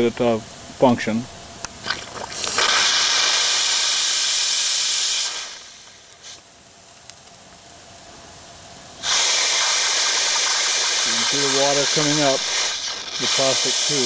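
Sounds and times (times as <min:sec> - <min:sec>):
steam hissing through injector: 0:02.2 - 0:06.4, 0:09.0 - 0:14.0.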